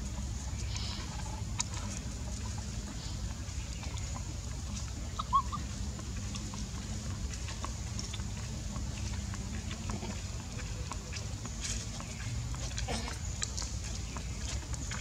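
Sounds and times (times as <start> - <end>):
low outdoor rumble: 0.0 - 15.0
animal chirp: 5.2 - 5.6.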